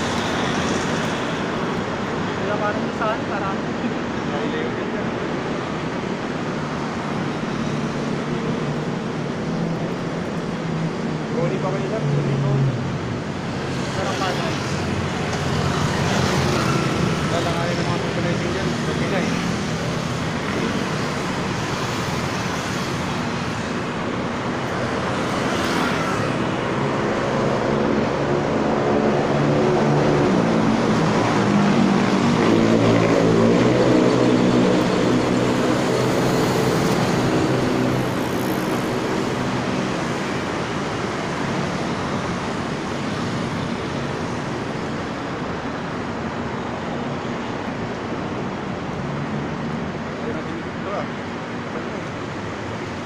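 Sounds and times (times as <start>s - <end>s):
city road traffic: 0.0s - 53.0s
large engine passing: 25.7s - 38.3s.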